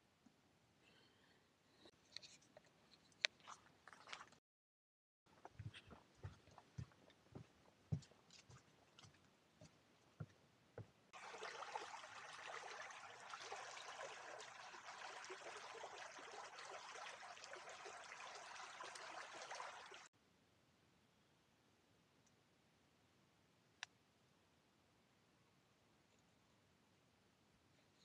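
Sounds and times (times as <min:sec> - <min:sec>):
footsteps on wooden boardwalk: 0:05.3 - 0:11.0
river rushing over riffles: 0:11.2 - 0:20.1.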